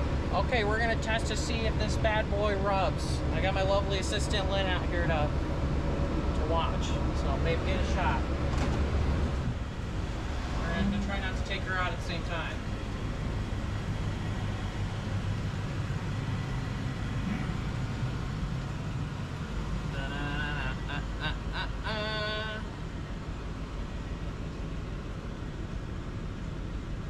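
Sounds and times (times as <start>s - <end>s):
engine idling low rumble: 0.0s - 27.0s
person calling out: 20.0s - 21.0s, 21.8s - 22.7s.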